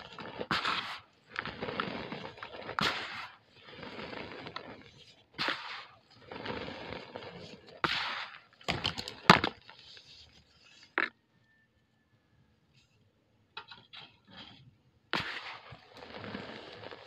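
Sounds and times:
cement lumps cracking: 0.0 - 10.0, 15.1 - 17.0
cement powder rustling: 0.0 - 11.0, 13.6 - 17.0
crumbs falling on pile: 5.4 - 9.7.

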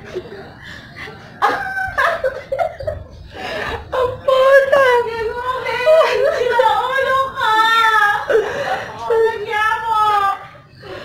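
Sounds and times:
people laughing: 0.0 - 10.2.

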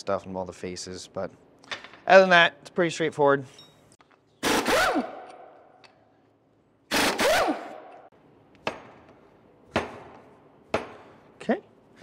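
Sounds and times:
impact wrench hammering: 6.9 - 11.2.

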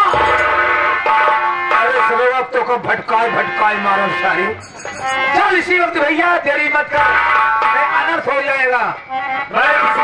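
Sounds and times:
held melody notes: 0.0 - 6.0.

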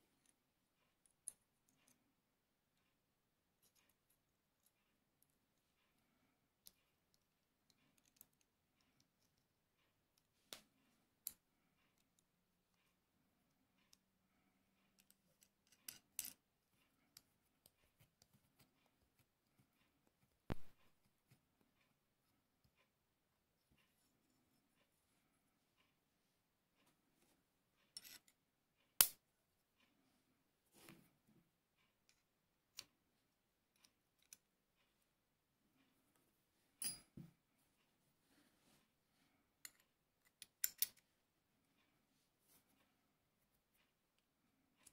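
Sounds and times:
faint metallic clicks and taps: 6.6 - 26.1, 26.7 - 35.1, 39.6 - 41.1
metallic clink: 36.8 - 37.3
clicks of small metal parts: 39.7 - 41.0.

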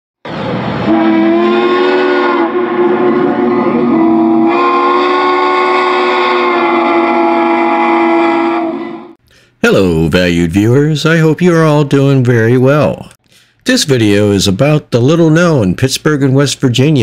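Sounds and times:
steam locomotive chime whistle: 0.8 - 9.2.

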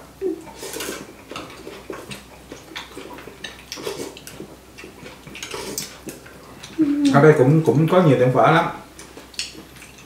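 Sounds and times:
noodles slurped and chewed: 0.4 - 7.3.

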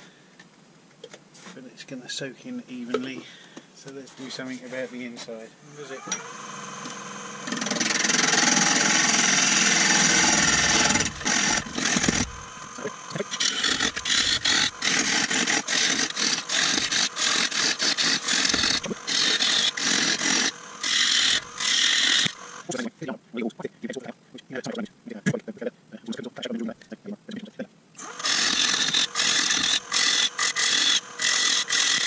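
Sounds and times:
turning tool cutting wood: 5.8 - 22.9, 28.0 - 32.0
wood lathe spinning: 5.9 - 22.8, 28.0 - 32.0.

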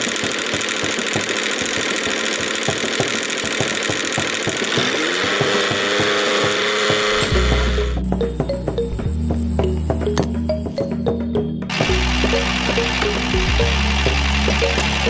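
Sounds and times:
small motor knocking rattle: 0.0 - 7.9, 11.7 - 15.0
rising whine: 7.1 - 15.0.

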